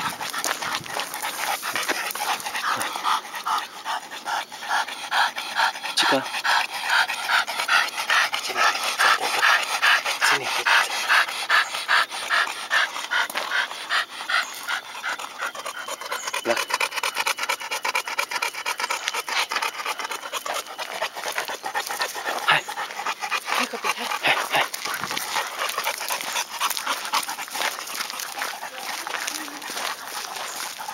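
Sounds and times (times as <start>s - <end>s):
dog panting: 0.0s - 30.9s.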